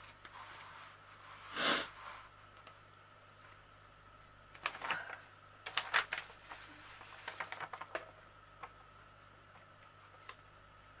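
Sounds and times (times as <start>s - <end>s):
plastic sheet crinkling: 4.5s - 8.9s.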